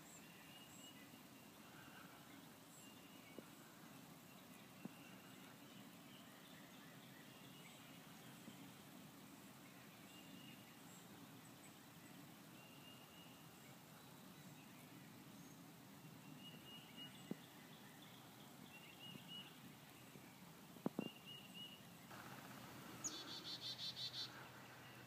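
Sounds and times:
faint high-pitched calls: 23.0s - 24.6s.

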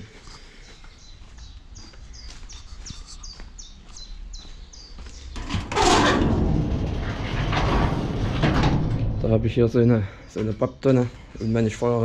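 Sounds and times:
songbird chirping: 0.0s - 5.7s, 8.9s - 12.0s
low outdoor rumble: 5.3s - 11.8s.

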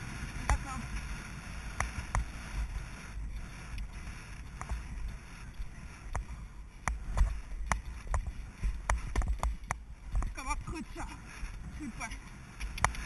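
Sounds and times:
wind rumbling on microphone: 0.0s - 13.0s
hooves and tack knocking: 3.2s - 10.9s.

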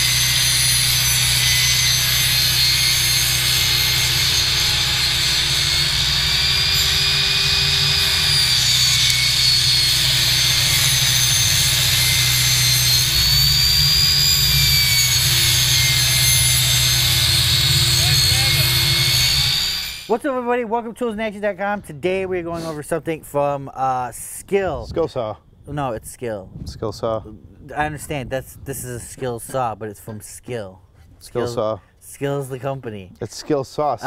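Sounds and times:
table saw ripping wood: 0.0s - 20.2s.

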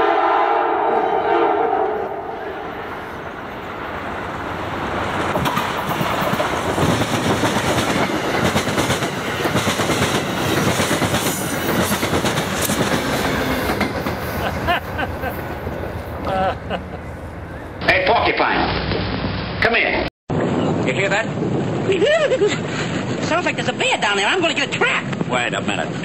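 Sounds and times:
train wheels rushing on rail: 1.4s - 18.0s
wheels clacking over rail joints: 4.4s - 14.4s.

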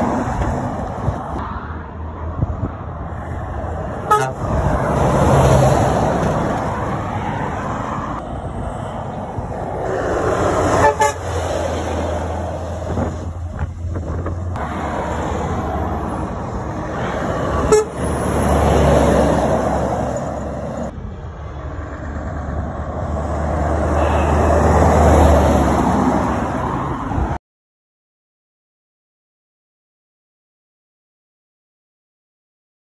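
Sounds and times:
lorries driving past: 0.0s - 27.4s
truck horn toot: 4.0s - 4.6s, 10.7s - 11.5s, 17.5s - 18.4s, 23.8s - 24.8s.

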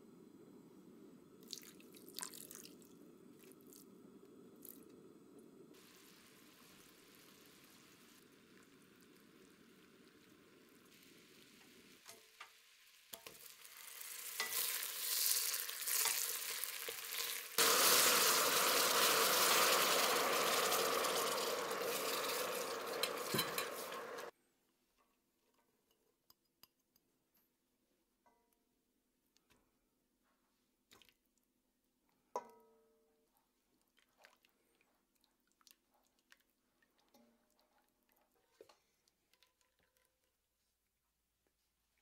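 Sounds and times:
syrup bubbling in saucepan: 0.5s - 24.3s, 33.8s - 42.0s
caramel sizzling: 1.4s - 24.3s
water hissing on hot caramel: 1.4s - 24.3s.

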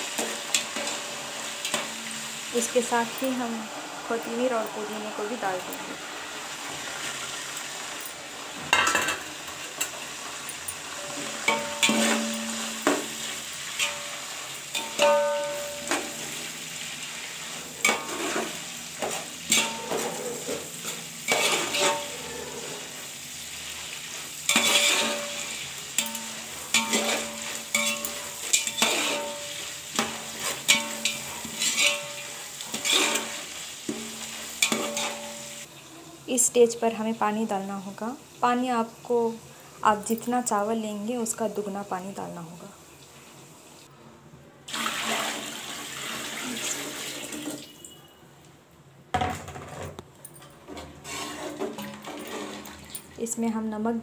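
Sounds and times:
vegetables sizzling in hot oil: 0.0s - 43.9s, 51.0s - 54.0s
metal spoon scraping and knocking pot: 10.5s - 16.2s, 17.8s - 22.3s, 24.5s - 35.5s, 50.7s - 53.1s.

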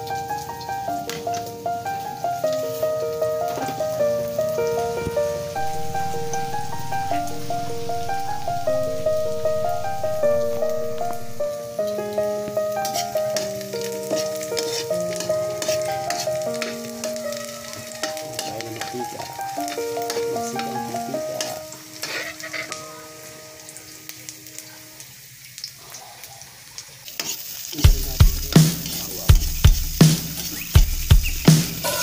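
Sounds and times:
simple melody of held notes: 0.0s - 25.0s
food sizzling in oil: 0.0s - 32.0s
spatula scraping wok: 14.1s - 17.2s
loud drum beats: 27.8s - 32.0s.

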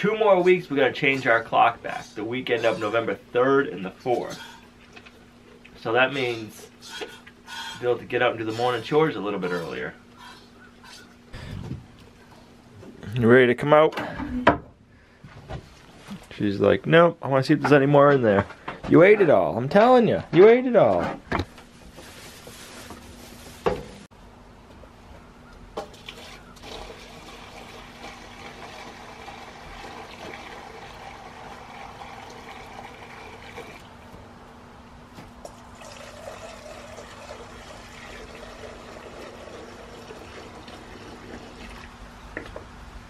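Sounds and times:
water pouring into metal bowl: 26.0s - 33.8s, 35.7s - 42.0s.

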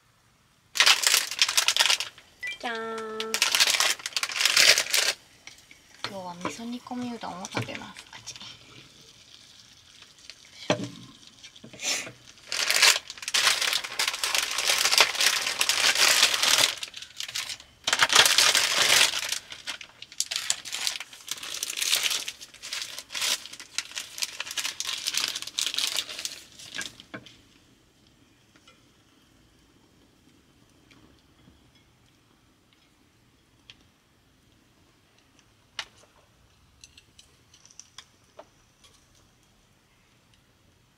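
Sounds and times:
plastic packaging crinkling and tearing: 0.8s - 5.2s, 12.2s - 27.2s.

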